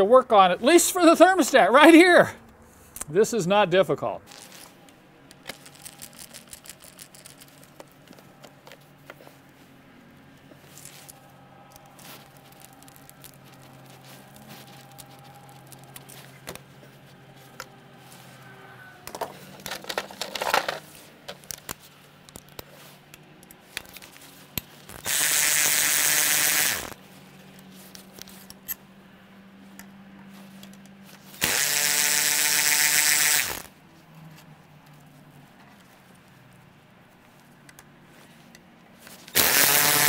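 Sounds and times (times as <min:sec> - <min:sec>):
power driver whirring: 0:23.8 - 0:27.0, 0:31.3 - 0:33.7, 0:39.2 - 0:40.0.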